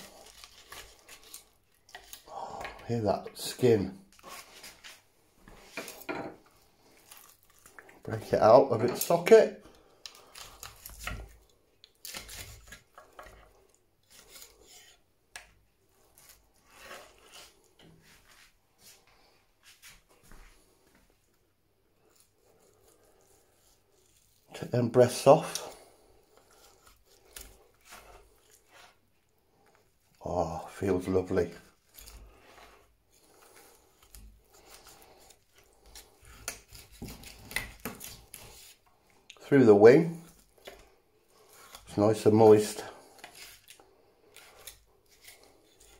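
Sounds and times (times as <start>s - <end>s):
meat being pulled apart by hand: 0.0s - 2.3s, 6.7s - 8.0s, 9.7s - 14.6s, 31.6s - 39.4s
roast skin crackling: 0.0s - 15.0s, 22.0s - 45.9s
knife cutting crisp skin and meat: 10.0s - 13.2s, 14.0s - 15.0s, 25.4s - 29.0s, 31.7s - 38.8s, 42.7s - 45.9s.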